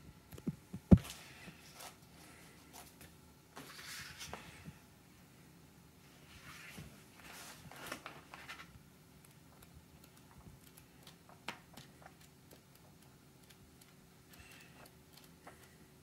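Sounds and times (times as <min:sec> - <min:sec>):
pages turning: 0:03.6 - 0:04.5, 0:06.3 - 0:08.7.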